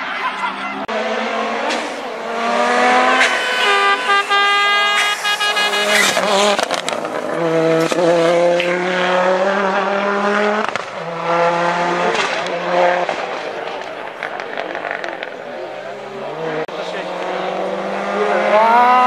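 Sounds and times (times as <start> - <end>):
rally car engine at high revs: 0.8 - 19.0
exhaust cracks: 1.6 - 17.5.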